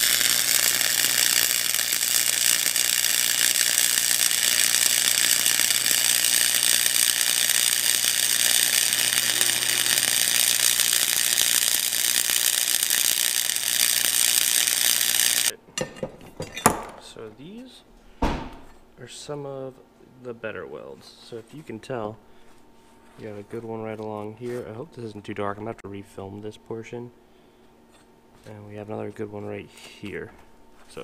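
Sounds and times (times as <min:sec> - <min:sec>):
low hum: 0:00.0 - 0:15.5
arc welding crackle: 0:00.0 - 0:15.6.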